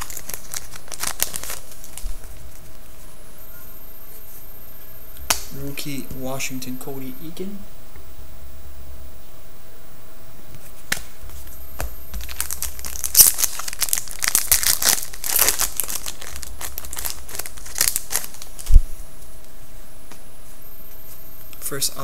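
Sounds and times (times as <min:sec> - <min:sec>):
foil wrapper crinkling: 0:00.0 - 0:03.0, 0:12.1 - 0:18.8.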